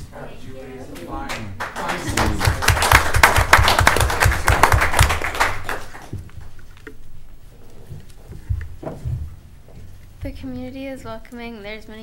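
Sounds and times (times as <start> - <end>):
audience applause: 1.3 - 6.2
soft knocks: 7.9 - 10.3.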